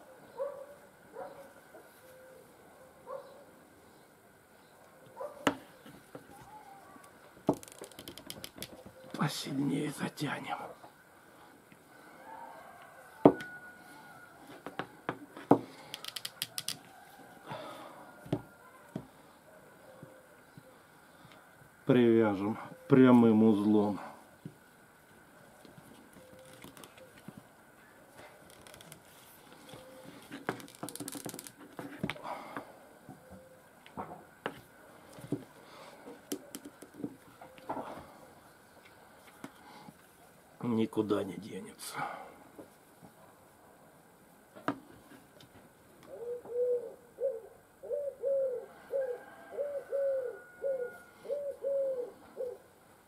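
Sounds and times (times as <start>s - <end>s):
cord rustling: 5.8s - 8.8s, 25.6s - 27.5s, 28.2s - 32.2s.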